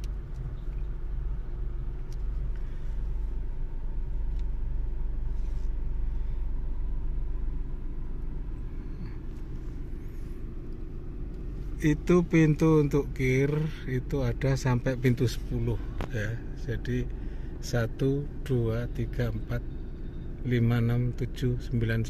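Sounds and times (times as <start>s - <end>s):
car rumble from inside cabin: 0.0s - 22.0s
faint steady hum: 0.0s - 22.0s.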